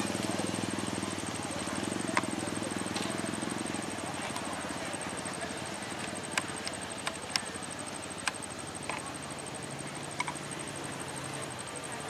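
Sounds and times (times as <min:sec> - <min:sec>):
insect trill: 0:00.0 - 0:12.0
sharp clicks: 0:01.8 - 0:10.6.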